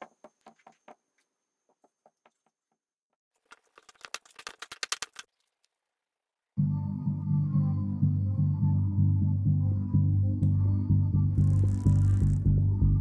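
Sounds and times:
background music: 6.6s - 13.0s.

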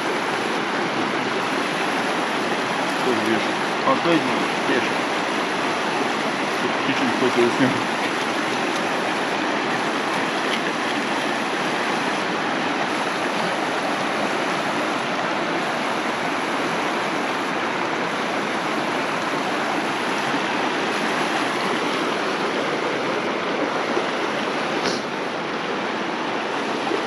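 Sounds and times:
water tumbling over rocks: 0.0s - 27.0s.

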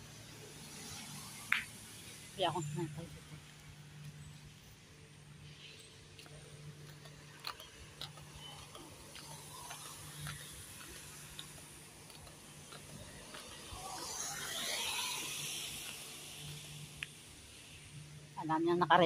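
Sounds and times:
hiss: 13.5s - 17.9s.

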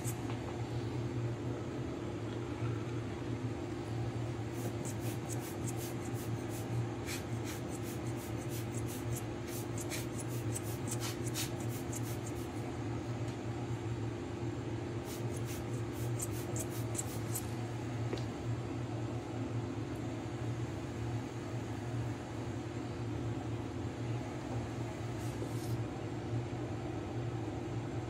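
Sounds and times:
low fan hum: 0.0s - 28.0s
air puffs from blower bulb: 4.5s - 12.5s.

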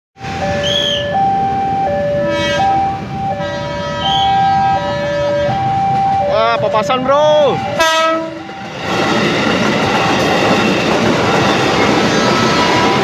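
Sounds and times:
level crossing two-tone alarm: 0.2s - 10.6s.

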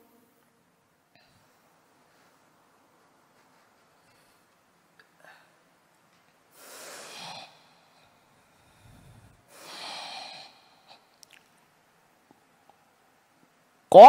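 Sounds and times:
deep breaths into microphone: 8.3s - 10.2s.

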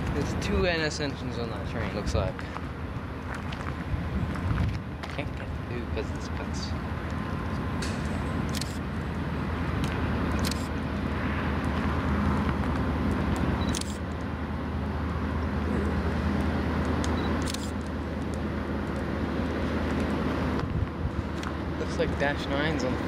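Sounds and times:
locomotive engine rumble: 0.0s - 23.0s.

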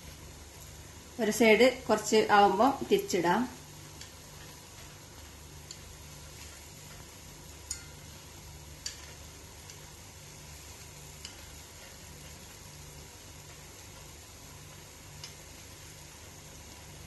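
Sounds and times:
deep-frying sizzle in oil: 0.0s - 17.0s
steel spoon clinking against pan: 7.7s - 8.0s.

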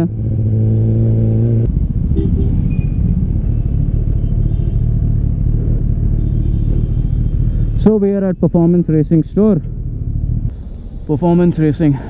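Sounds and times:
motorcycle engine running: 0.0s - 10.5s.

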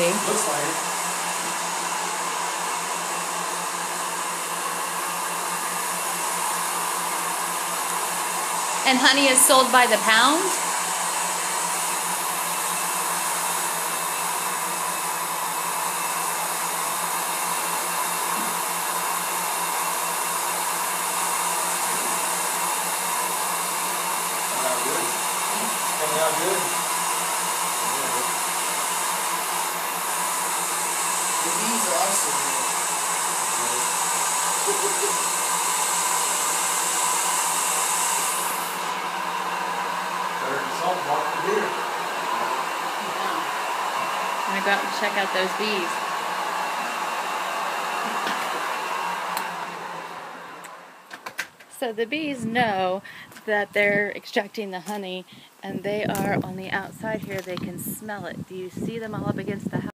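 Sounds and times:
honey extractor motor whirring: 0.0s - 54.0s
high hiss: 29.9s - 39.0s.

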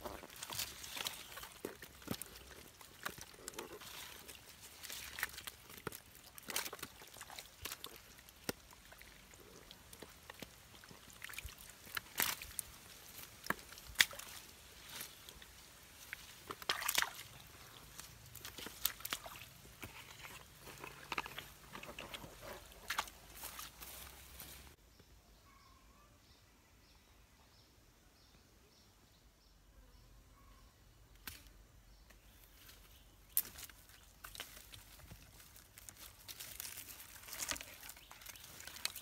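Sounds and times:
hands sloshing in muddy water: 0.2s - 24.7s.

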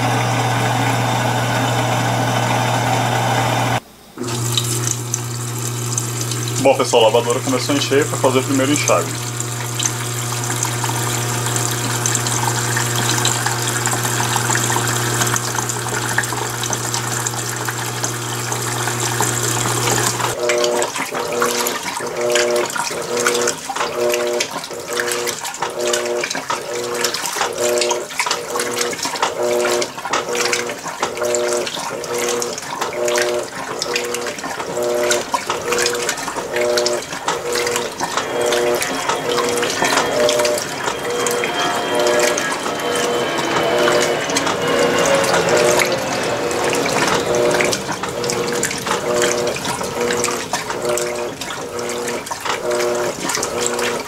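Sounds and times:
washing machine hum: 0.0s - 54.0s
washing machine motor strokes: 0.0s - 54.0s
water running into tub: 0.0s - 54.0s
water sloshing: 4.2s - 54.0s.

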